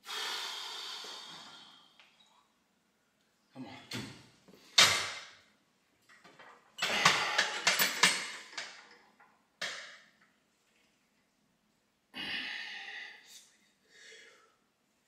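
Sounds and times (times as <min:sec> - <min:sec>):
weight machine metal clanking: 0:06.9 - 0:08.9.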